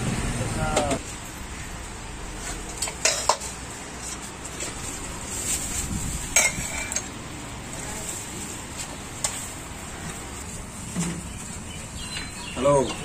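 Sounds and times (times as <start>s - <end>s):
metal pots and spoon clinking: 2.4s - 4.8s, 6.3s - 7.2s.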